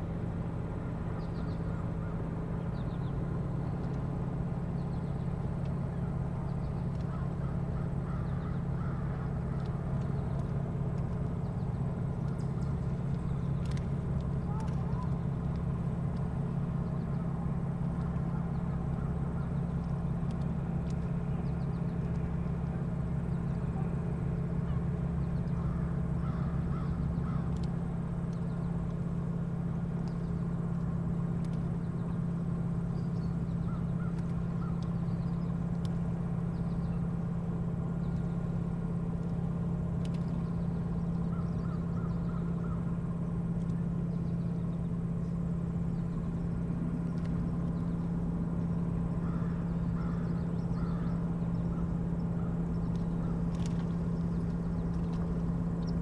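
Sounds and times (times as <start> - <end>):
low mechanical hum: 0.0 - 56.0
crows cawing: 7.1 - 9.7, 25.6 - 27.6, 33.7 - 34.9, 41.3 - 42.9, 49.2 - 52.6.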